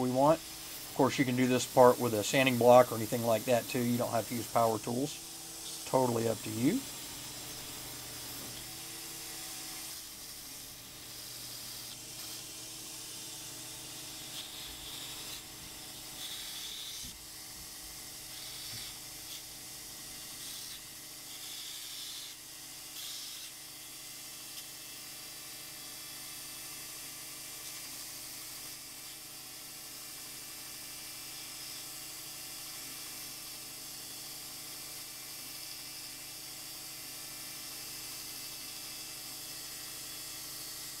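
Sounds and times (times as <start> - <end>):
power sander humming: 0.0 - 19.2.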